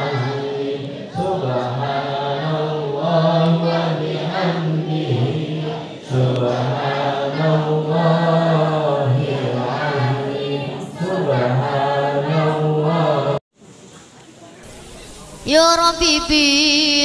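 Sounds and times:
group chanting prayers in unison: 0.0 - 13.4.

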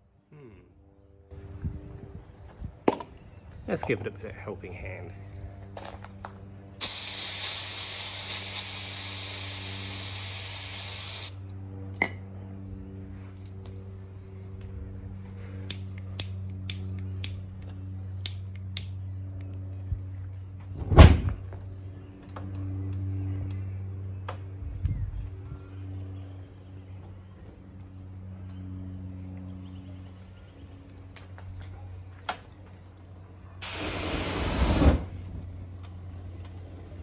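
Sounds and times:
low hum: 0.0 - 37.0
spray hiss: 6.8 - 11.4, 33.6 - 35.1
fire igniting with a whoosh: 33.6 - 35.6
flames burning: 33.6 - 35.6.

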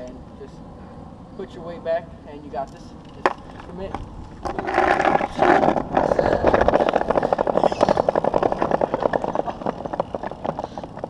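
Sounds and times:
bike rolling on pavement: 1.0 - 11.0
fast clicking freewheel rattle: 4.5 - 11.0.

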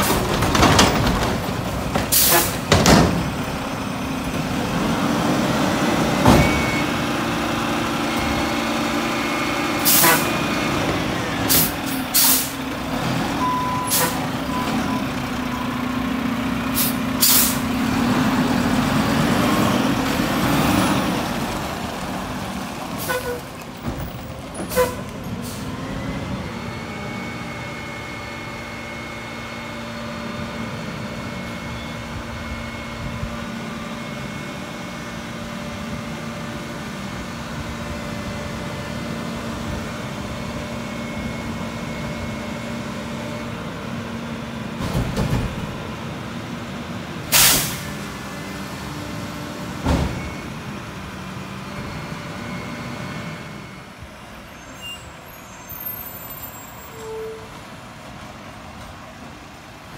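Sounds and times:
cart banging against hopper: 0.0 - 3.6, 44.7 - 45.9
garbage truck engine: 0.0 - 59.9
air brake hisses: 11.5 - 12.6, 16.8 - 17.7, 47.3 - 47.9.

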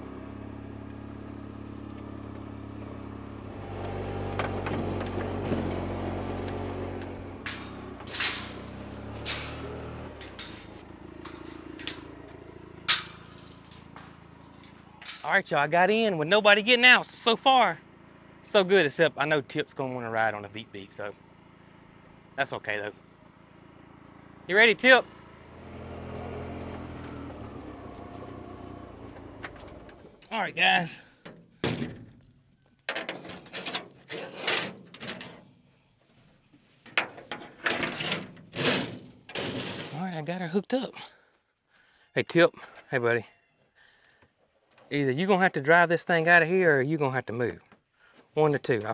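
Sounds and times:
utility vehicle engine idling: 0.0 - 15.5, 16.9 - 32.8
metal hitching gear rattling: 7.0 - 15.4
sharp clanks: 7.4 - 15.4.

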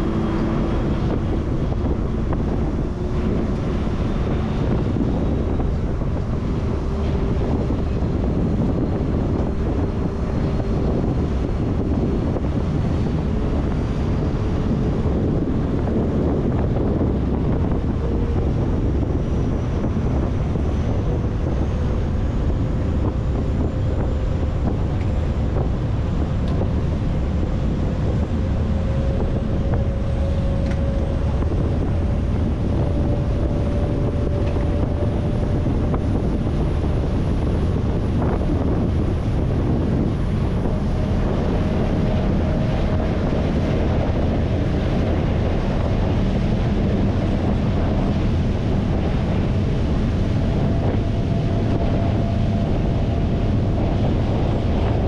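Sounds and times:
ferry engine: 0.0 - 55.0
water rushing: 0.0 - 55.0
wind buffeting microphone: 0.0 - 55.0.

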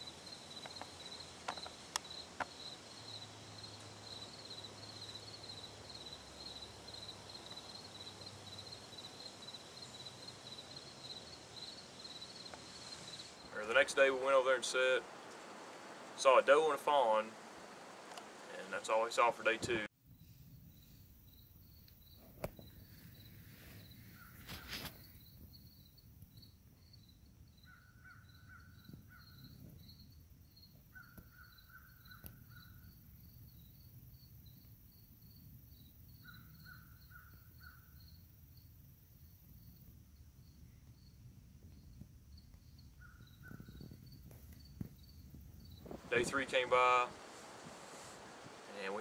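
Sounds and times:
brief rustle: 22.3 - 25.2.

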